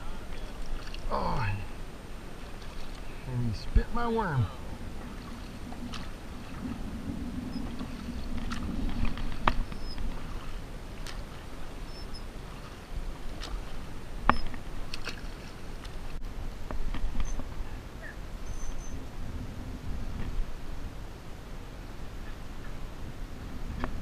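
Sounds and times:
water splashing and dripping: 0.0s - 1.6s, 2.4s - 3.2s, 4.8s - 17.6s.

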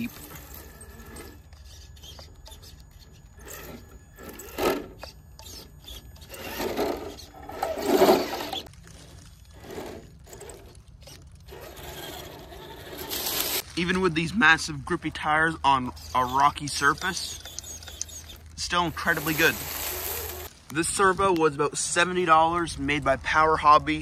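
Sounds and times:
electric motor whirring: 0.0s - 13.7s, 15.8s - 20.5s
tyres scraping on stone: 0.0s - 13.7s, 15.2s - 20.5s.

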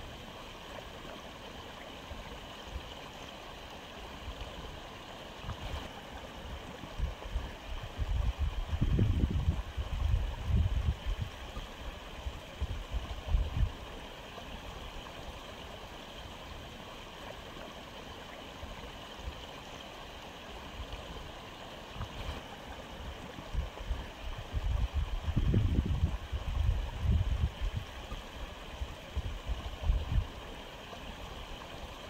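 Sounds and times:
aquarium filter water gurgling: 0.0s - 32.0s.

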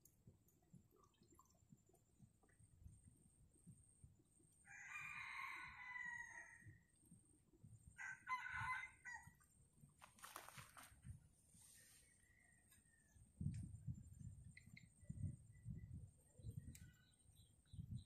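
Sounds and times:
rooster crowing: 4.7s - 6.7s, 8.0s - 9.4s
brief rustling: 10.0s - 11.0s.

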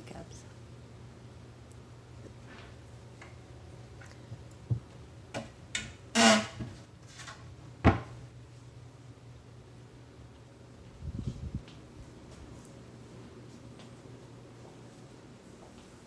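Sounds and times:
cabinet doors clicking and knocking: 7.8s - 8.1s.

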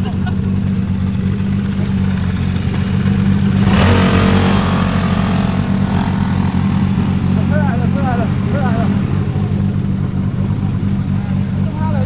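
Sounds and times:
scooter engine revving: 0.0s - 12.0s
steady engine drone: 0.0s - 12.0s.

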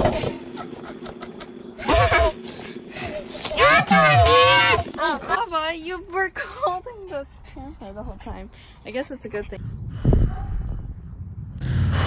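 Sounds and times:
breath blowing on microphone: 9.6s - 11.2s.

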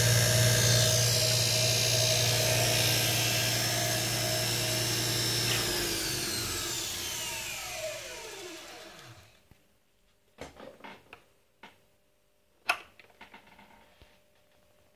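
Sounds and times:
motor whine spinning down: 0.0s - 9.3s.

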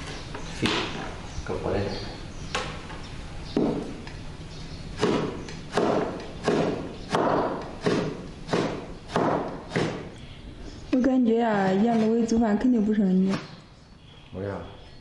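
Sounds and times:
cleaver chopping on wooden board: 3.6s - 4.0s, 5.0s - 10.1s.

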